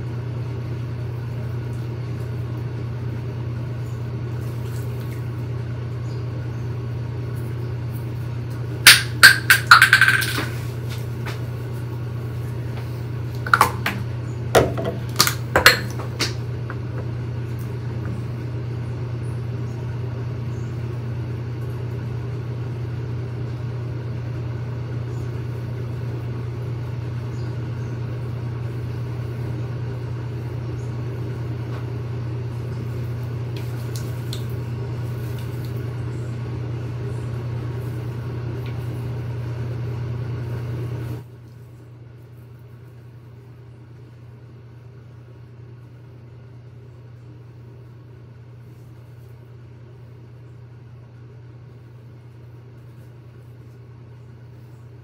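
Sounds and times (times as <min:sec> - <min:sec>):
steady low hum: 0:00.0 - 0:55.0
bottles knocking on countertop: 0:08.9 - 0:10.6, 0:14.6 - 0:16.4.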